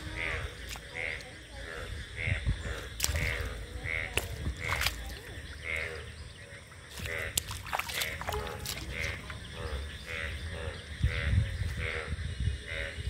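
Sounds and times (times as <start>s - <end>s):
frogs calling: 0.0s - 13.0s.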